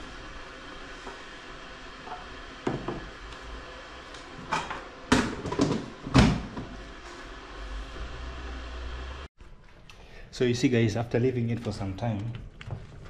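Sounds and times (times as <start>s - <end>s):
kitchen knocks and clanks: 2.1s - 3.1s, 4.4s - 6.8s.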